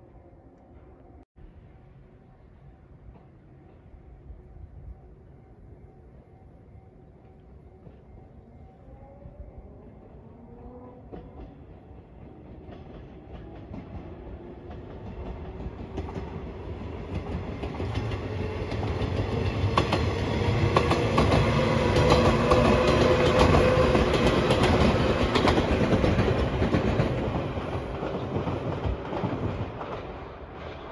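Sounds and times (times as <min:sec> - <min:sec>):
electric train passing: 0:00.0 - 0:30.9
wheels clacking over rail joints: 0:12.6 - 0:30.9.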